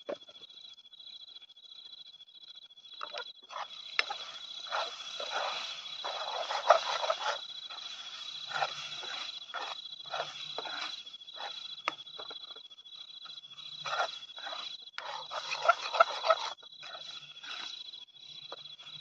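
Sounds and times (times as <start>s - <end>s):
night insects chirping: 0.0s - 19.0s
metal ladle scraping a pan: 3.6s - 11.5s, 13.8s - 17.7s.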